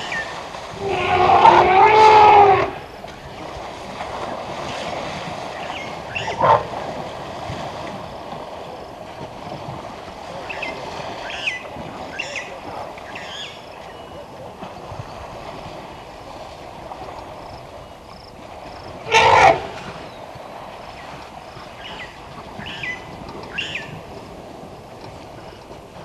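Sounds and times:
water sloshing and splashing: 0.0s - 26.0s
elephant call falling in pitch: 19.1s - 19.8s.

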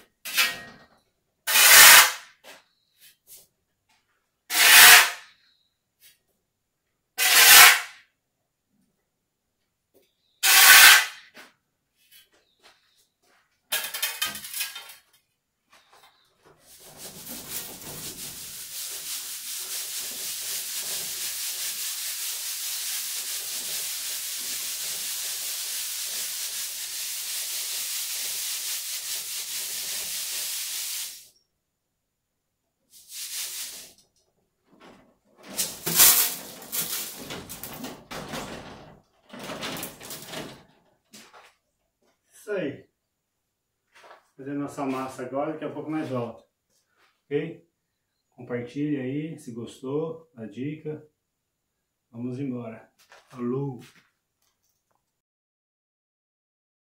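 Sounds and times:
shovel scraping sand: 1.5s - 2.2s, 4.5s - 5.2s, 7.2s - 7.9s, 10.4s - 11.2s, 16.7s - 31.2s, 33.0s - 33.9s, 35.6s - 37.3s
sand hissing through wire sieve: 16.7s - 31.3s, 32.9s - 34.0s, 35.5s - 37.4s.

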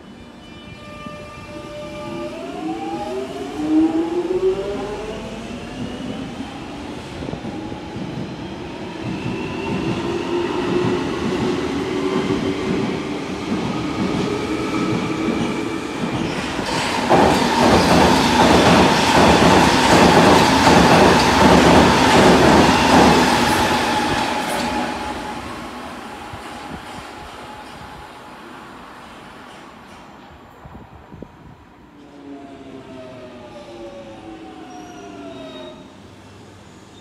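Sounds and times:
train squealing tone: 0.0s - 3.2s, 33.4s - 37.0s.

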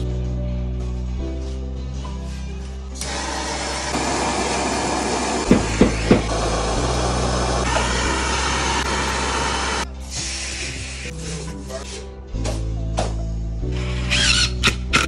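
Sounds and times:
gas torch hissing: 3.0s - 11.3s.

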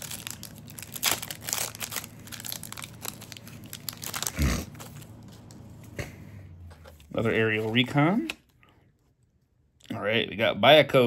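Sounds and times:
wrapper being torn and crinkled: 0.0s - 5.6s.

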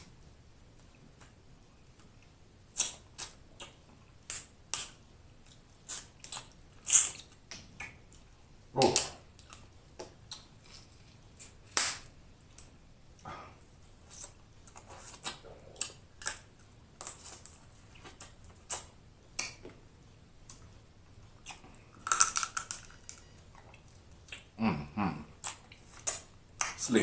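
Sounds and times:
crab shells cracking: 15.2s - 17.6s, 21.5s - 23.3s
chewing and lip smacks: 20.4s - 24.6s.

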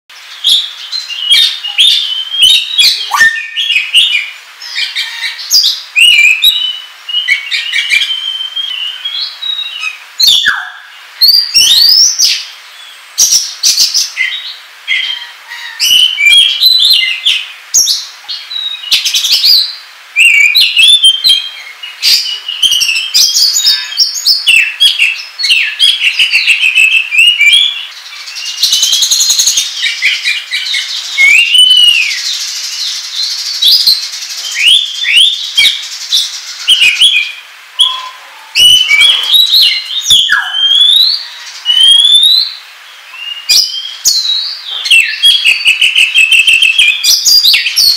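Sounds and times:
bird singing varied whistles: 0.5s - 12.3s, 18.5s - 27.9s, 28.5s - 32.4s, 33.6s - 35.8s, 36.6s - 42.6s, 43.2s - 47.9s.

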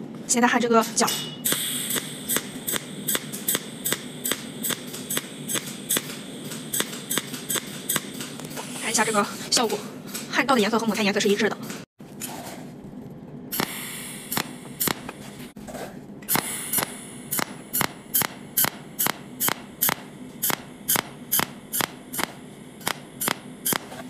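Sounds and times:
welding machine ticking pulses: 1.5s - 9.2s, 13.6s - 15.2s, 16.3s - 24.0s.

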